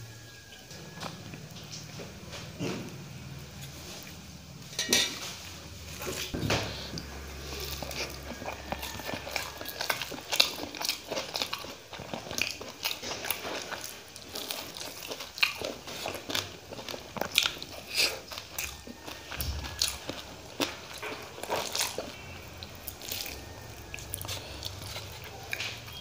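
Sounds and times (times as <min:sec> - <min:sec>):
chewing and crunching: 0:00.0 - 0:26.0
fingers working food on plate: 0:06.0 - 0:26.0.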